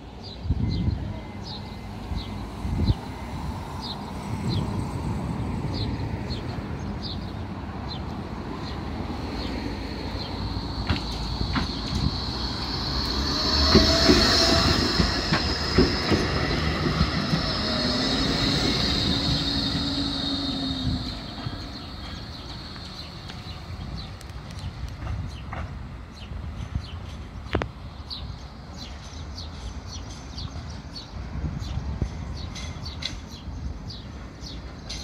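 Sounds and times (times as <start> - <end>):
tram rumbling past: 0.0 - 35.0
high wheel squeal: 10.6 - 23.5
wheels clicking over rail joints: 10.8 - 20.2.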